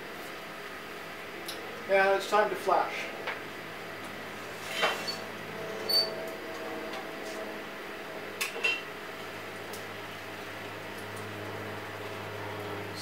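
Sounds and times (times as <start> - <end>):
furnace hum: 0.0 - 13.0.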